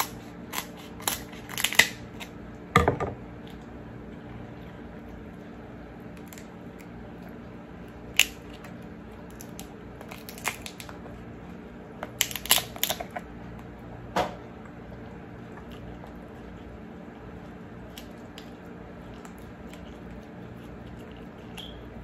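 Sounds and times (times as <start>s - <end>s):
crab shell cracking: 0.0s - 2.4s, 6.1s - 7.0s, 7.9s - 11.0s, 12.0s - 13.3s, 17.9s - 18.6s
low room hum: 0.0s - 22.0s
shell crackling: 12.1s - 13.1s.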